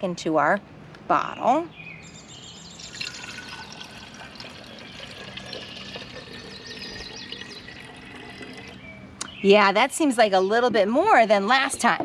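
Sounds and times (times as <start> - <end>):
water pouring into a bottle: 2.8 - 8.8.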